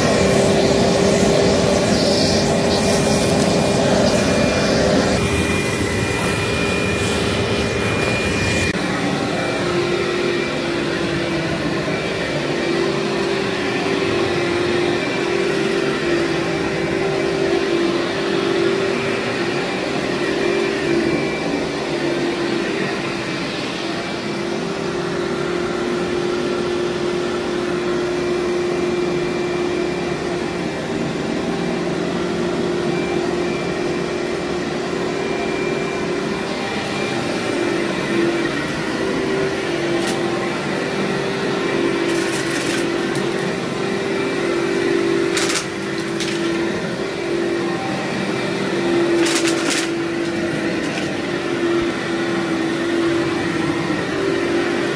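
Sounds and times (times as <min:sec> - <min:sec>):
vacuum cleaner running: 0:00.0 - 0:54.9
vacuum picking up grit: 0:36.6 - 0:54.9.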